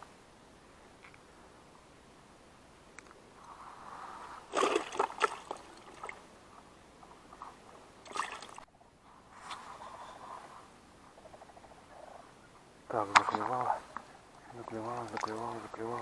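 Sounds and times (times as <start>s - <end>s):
water splashing and sloshing: 4.4s - 6.3s, 7.1s - 8.7s, 14.4s - 16.0s.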